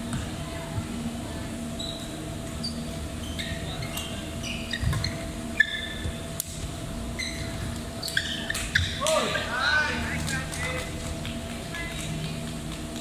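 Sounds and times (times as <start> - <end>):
shoes squeaking on court floor: 1.7 - 6.4, 7.1 - 9.1.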